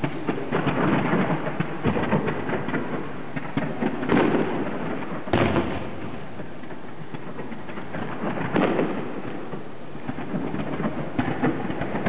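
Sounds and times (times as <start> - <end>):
firework shells bursting: 0.0 - 12.0
noisy wash of firework fountains: 0.0 - 12.0.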